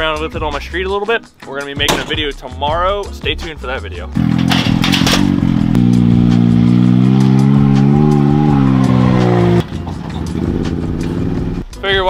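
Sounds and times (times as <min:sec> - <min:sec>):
off-road vehicle engine running: 0:04.1 - 0:11.8.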